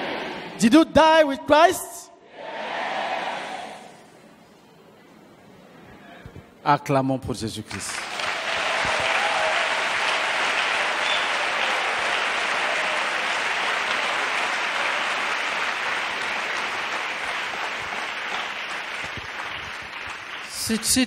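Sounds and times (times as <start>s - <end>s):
congregation applauding: 7.7s - 21.0s.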